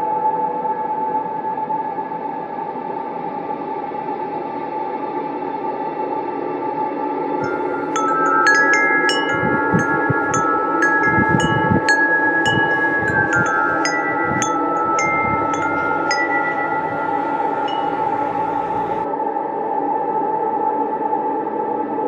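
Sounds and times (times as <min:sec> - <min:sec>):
steady ambient drone: 0:07.4 - 0:19.1
wind chimes tinkling: 0:07.4 - 0:19.1.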